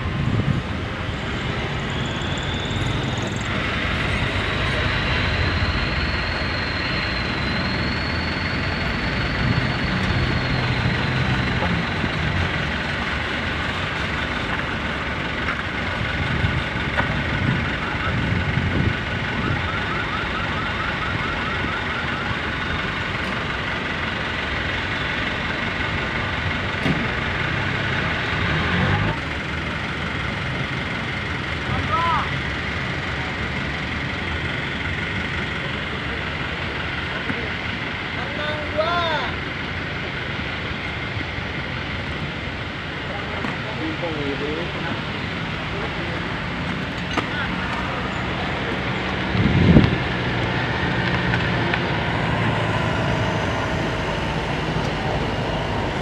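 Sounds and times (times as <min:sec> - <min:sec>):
high-pitched whine: 0:00.0 - 0:56.0
truck engines running: 0:00.0 - 0:56.0.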